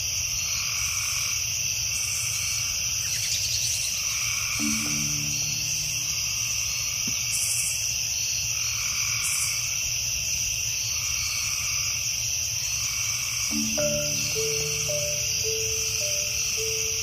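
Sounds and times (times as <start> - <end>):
frog calling: 4.1 - 7.1, 12.8 - 17.0
insect trilling: 4.4 - 7.5, 13.5 - 17.0
held music notes: 4.6 - 6.7, 13.5 - 17.0.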